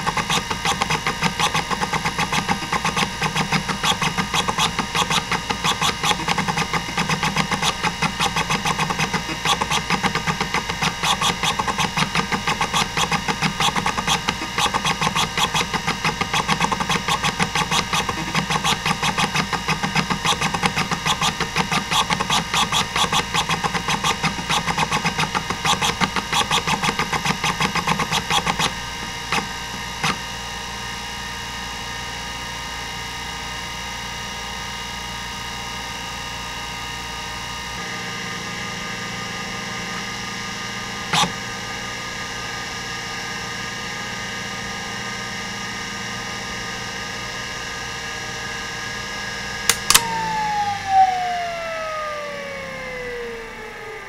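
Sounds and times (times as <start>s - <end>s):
hard drive head clicking: 0.0s - 29.5s
hard drive whir: 0.0s - 54.0s.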